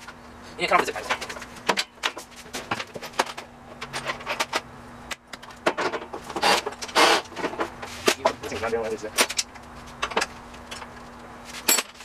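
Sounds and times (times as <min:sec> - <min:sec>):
metal parts clicking and clattering: 0:11.6 - 0:12.0.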